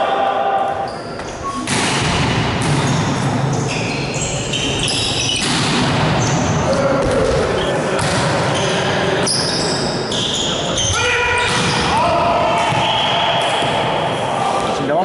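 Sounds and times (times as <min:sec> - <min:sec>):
sneakers squeaking on court floor: 0:00.8 - 0:01.7, 0:02.6 - 0:13.9
players' voices: 0:03.3 - 0:15.0.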